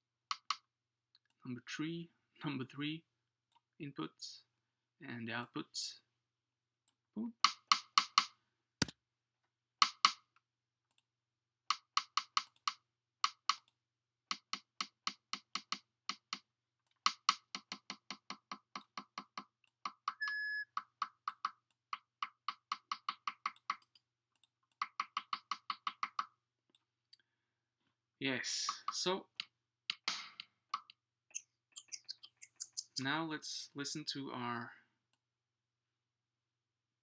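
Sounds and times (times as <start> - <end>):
steady beep: 20.2 - 20.7.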